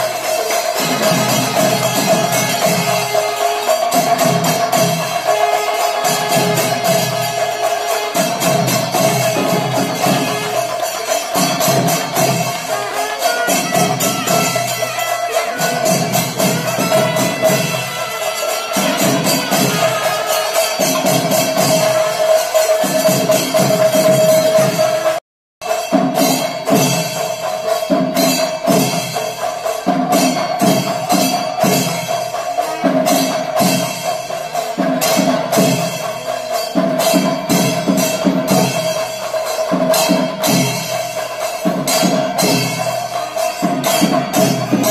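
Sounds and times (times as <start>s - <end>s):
held high tone: 0.0s - 25.8s
cymbals clashing: 0.0s - 44.9s
drums beaten in driving rhythm: 0.0s - 44.9s.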